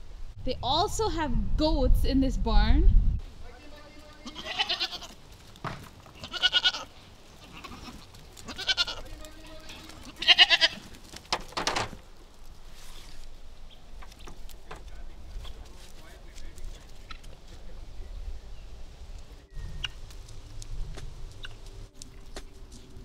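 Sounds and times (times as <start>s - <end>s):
goats bleating: 3.7s - 5.3s, 6.0s - 11.0s.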